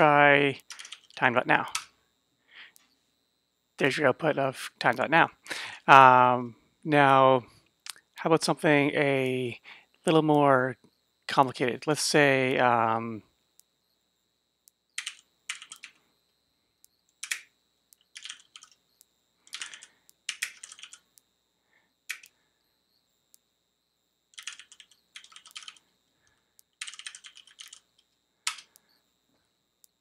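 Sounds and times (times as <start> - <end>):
typing on computer keyboard: 0.6 - 1.8, 15.0 - 16.0, 17.2 - 18.8, 19.5 - 21.0, 22.1 - 22.3, 24.3 - 25.8, 26.8 - 28.8.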